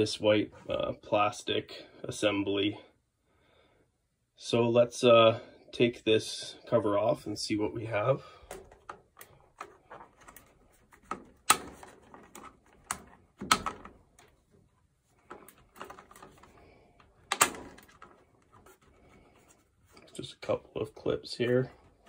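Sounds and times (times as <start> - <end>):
plastic clips snapping: 8.5 - 14.4, 15.3 - 18.8.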